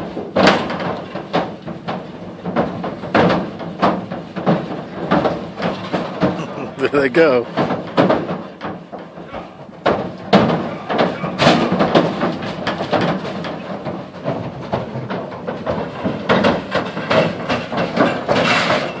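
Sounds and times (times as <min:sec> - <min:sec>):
cattle hooves knocking on trailer: 0:00.0 - 0:19.0.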